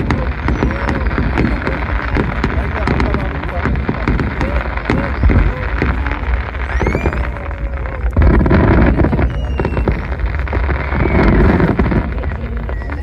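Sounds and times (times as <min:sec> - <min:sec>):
fireworks bursting and crackling: 0:00.0 - 0:13.0
fireworks whistling: 0:00.0 - 0:13.0.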